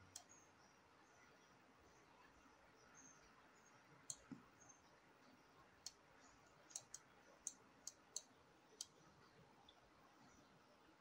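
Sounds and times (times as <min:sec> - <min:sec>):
computer mouse clicks: 0:00.0 - 0:00.4, 0:04.0 - 0:04.4, 0:06.6 - 0:09.0.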